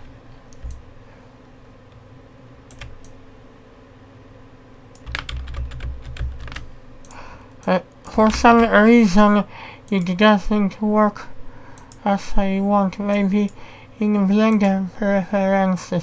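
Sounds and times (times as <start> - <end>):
computer keyboard keystrokes: 0.5 - 0.8, 2.7 - 3.2, 5.0 - 7.2.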